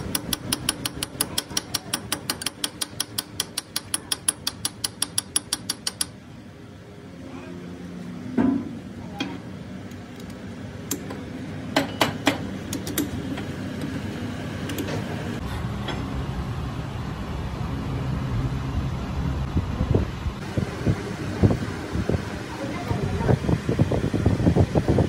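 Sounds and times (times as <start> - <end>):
sharp metallic clicks and clinks: 0.0 - 6.2
low machine hum: 0.0 - 25.0.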